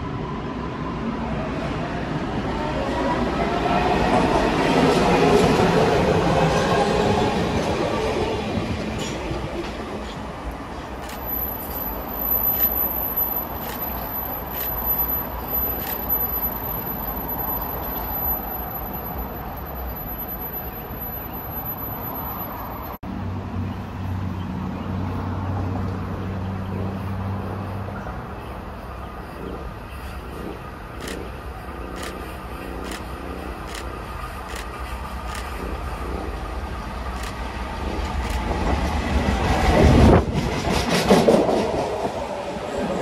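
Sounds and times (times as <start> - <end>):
traffic rumble: 0.0 - 43.0.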